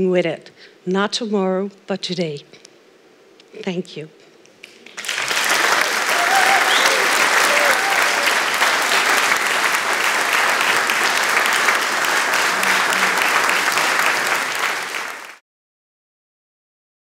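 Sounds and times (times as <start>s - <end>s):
audience applauding: 4.6s - 15.4s.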